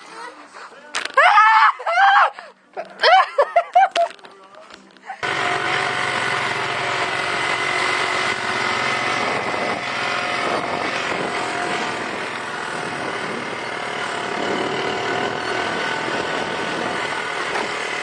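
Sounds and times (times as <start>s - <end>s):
quad bike engine running: 5.2s - 18.0s
wind noise: 8.7s - 17.6s.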